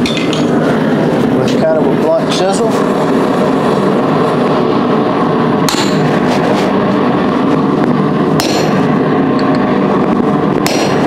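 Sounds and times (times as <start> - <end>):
loud background noise: 0.0 - 11.0
hammer striking chisel on metal: 5.7 - 6.0, 8.4 - 8.8, 10.6 - 11.0.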